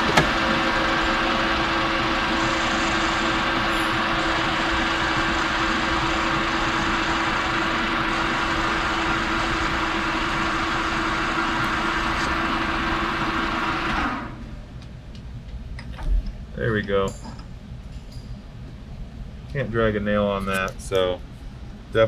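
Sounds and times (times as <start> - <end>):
metal lathe running: 0.0 - 14.4.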